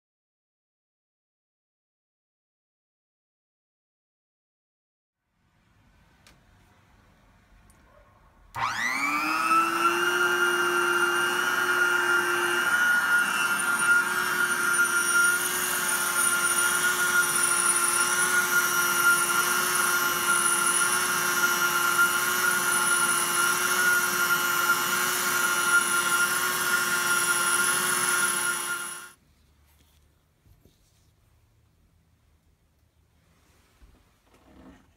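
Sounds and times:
heat gun motor whine: 8.6 - 29.2.

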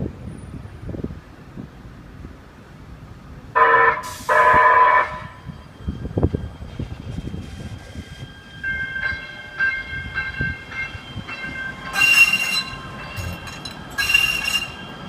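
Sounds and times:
train wheels squealing on rails: 3.9 - 15.0
loud wheel screeches: 11.9 - 14.9.

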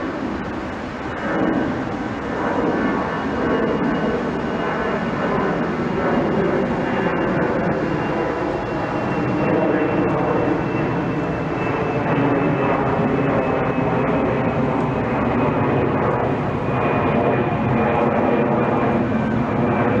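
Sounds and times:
high jet engine whine: 0.0 - 20.0
jet engine roar overhead: 0.0 - 20.0.

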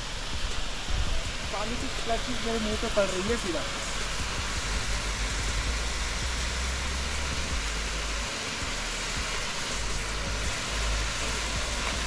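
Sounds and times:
low rumble: 0.0 - 12.0
waterfall roaring: 0.0 - 12.0.

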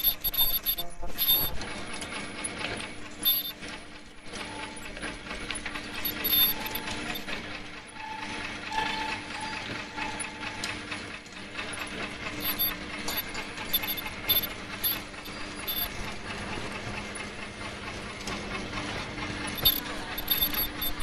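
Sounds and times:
steady machine hum: 0.0 - 21.0
wrench clicking on metal: 12.4 - 15.9.

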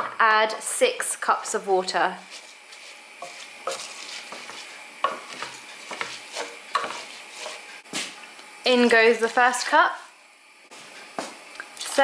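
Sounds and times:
faint sizzle: 0.0 - 12.0
wooden spoon scraping pan: 2.2 - 8.2, 8.9 - 10.1.

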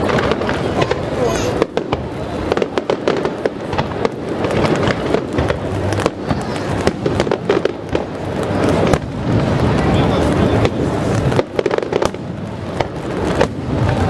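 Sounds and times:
fireworks bursting bangs and pops: 0.0 - 14.0.

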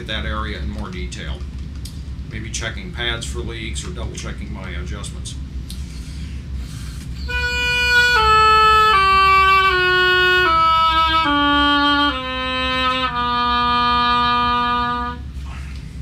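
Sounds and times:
oboe playing descending scale: 7.2 - 15.3.

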